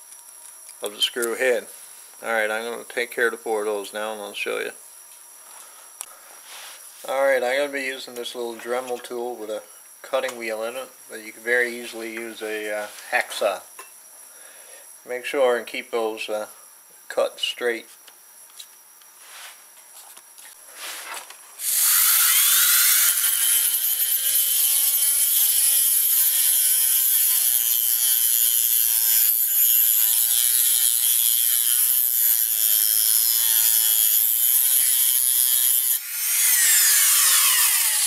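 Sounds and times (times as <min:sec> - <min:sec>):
rotary tool grinding screw: 0:21.6 - 0:38.0.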